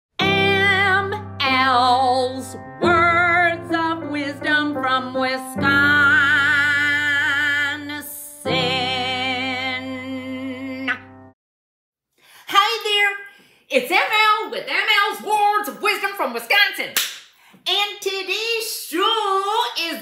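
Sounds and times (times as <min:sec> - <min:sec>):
woman singing with vibrato: 0:00.2 - 0:11.1.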